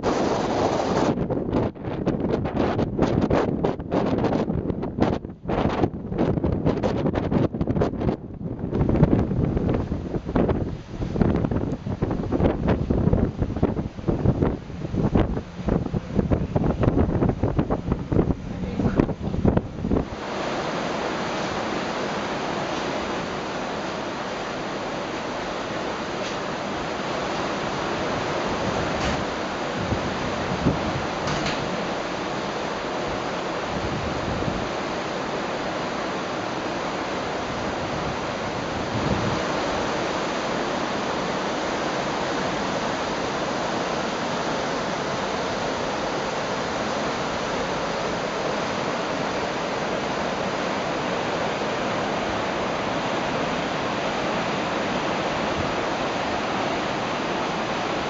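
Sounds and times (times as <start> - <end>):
wind rushing: 0.0 - 21.6
churning water: 8.7 - 58.0.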